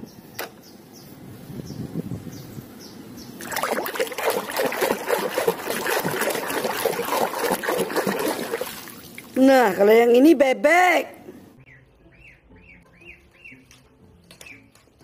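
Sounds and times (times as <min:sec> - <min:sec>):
hand splashing in muddy water: 0:03.4 - 0:09.4.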